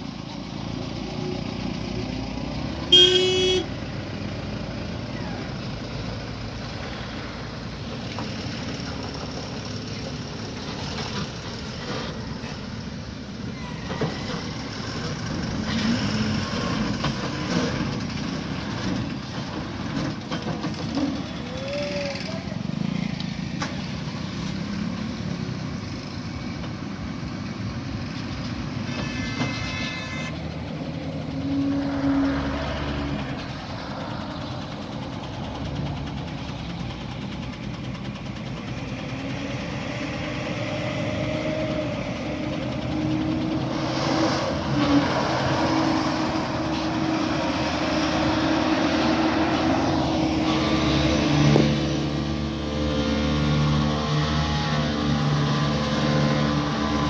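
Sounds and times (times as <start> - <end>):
truck diesel engine running: 0.0 - 29.3, 30.2 - 57.0
brief high tone: 2.9 - 3.6.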